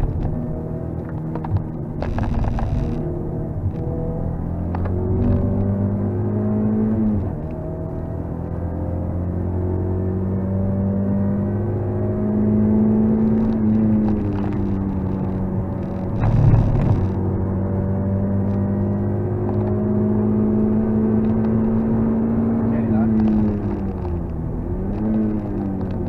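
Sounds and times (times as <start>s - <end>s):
car engine revving: 0.0s - 26.0s
loud rough burst of noise: 16.2s - 17.2s.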